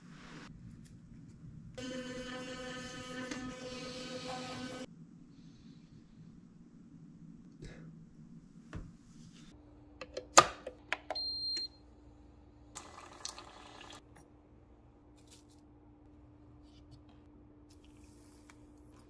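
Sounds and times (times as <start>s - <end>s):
low steady hum: 4.5s - 19.0s.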